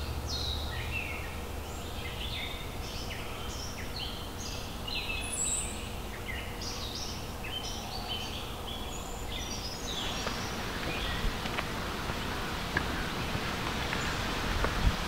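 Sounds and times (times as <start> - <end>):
low rushing background: 8.5 - 15.0.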